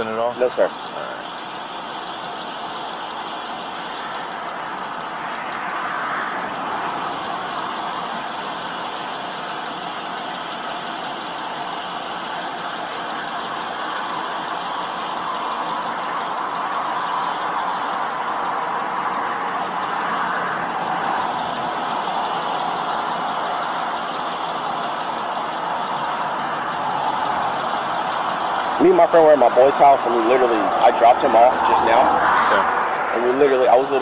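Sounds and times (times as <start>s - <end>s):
vehicles passing on road: 0.0s - 34.0s.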